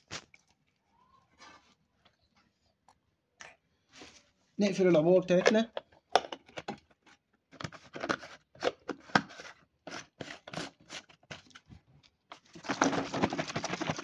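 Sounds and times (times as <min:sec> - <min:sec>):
water sloshing in shaken plastic jar: 0:12.3 - 0:14.0.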